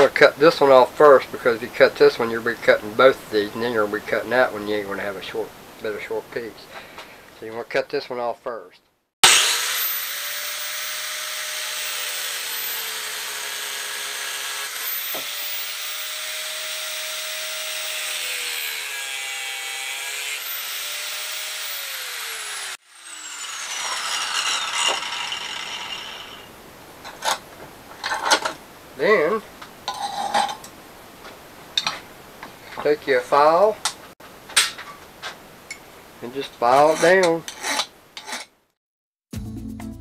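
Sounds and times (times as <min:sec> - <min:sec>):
angle grinder cutting steel: 0:09.2 - 0:26.5
grinder wheel spinning down: 0:09.2 - 0:26.5.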